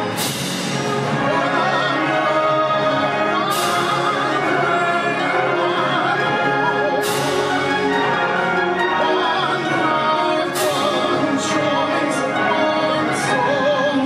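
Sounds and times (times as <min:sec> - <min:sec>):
cymbal crash: 0:00.0 - 0:01.3
concert band playing: 0:00.0 - 0:14.0
tenor voice singing: 0:00.8 - 0:14.0.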